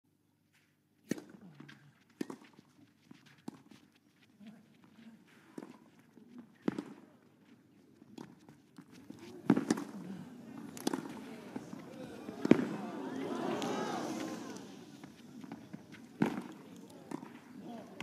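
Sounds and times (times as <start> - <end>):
tennis racket striking ball: 8.1 - 10.0, 10.6 - 12.9, 15.4 - 17.4.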